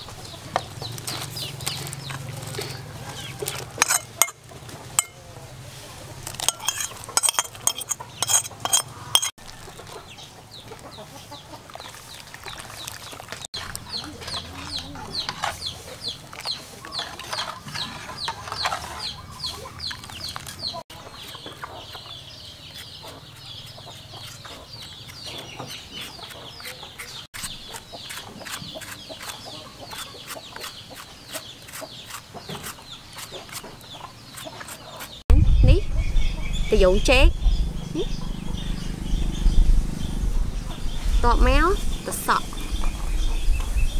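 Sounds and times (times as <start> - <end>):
chickens clucking: 0.0 - 12.6, 13.5 - 35.2, 35.9 - 43.9
knife scraping ceramic plate: 3.8 - 4.4, 5.0 - 5.2, 6.3 - 9.4, 16.9 - 19.2.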